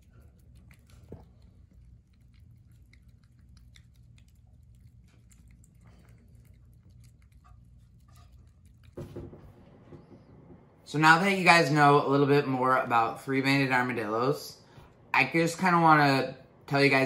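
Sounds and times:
faint chewing clicks: 0.0 - 9.0.

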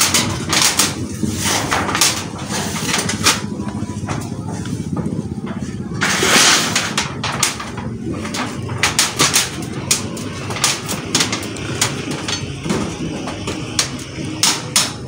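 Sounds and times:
hammer on metal roofing sheets: 0.0 - 15.0.

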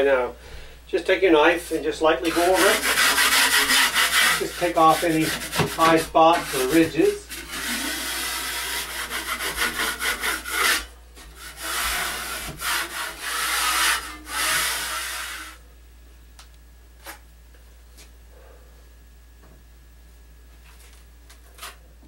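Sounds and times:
drywall knife scraping: 1.4 - 15.6.

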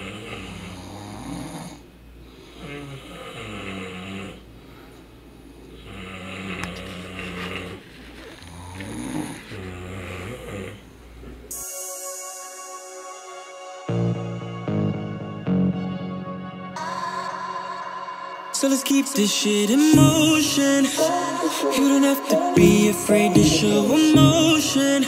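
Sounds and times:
person snoring: 0.0 - 4.5, 5.8 - 10.9.

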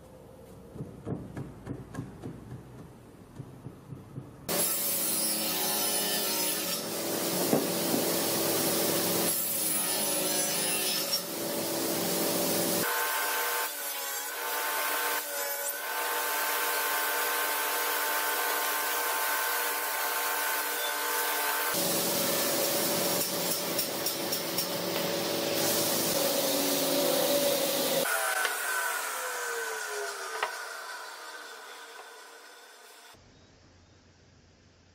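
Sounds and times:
table saw cutting wood: 4.5 - 33.2.

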